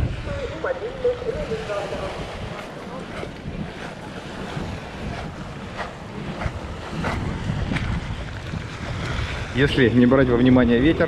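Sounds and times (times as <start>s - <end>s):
sea waves on shore: 0.0s - 11.0s
wind buffeting microphone: 0.0s - 11.0s.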